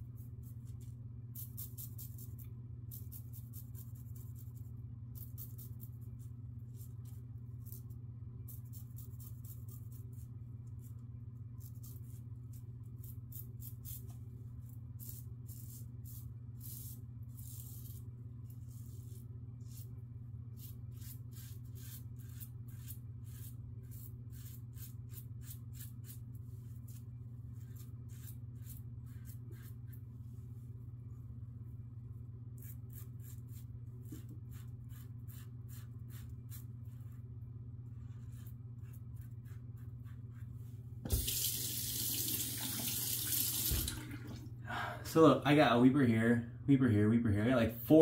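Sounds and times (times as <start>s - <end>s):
razor scraping stubble: 20.6s - 30.0s, 32.6s - 37.1s.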